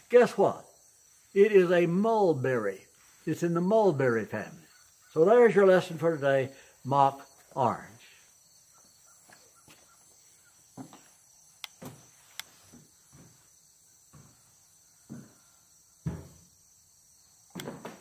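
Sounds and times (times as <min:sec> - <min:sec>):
high-pitched insect chorus: 0:00.0 - 0:18.0
sharp clicks: 0:11.6 - 0:12.6
soft thumps: 0:16.0 - 0:16.5.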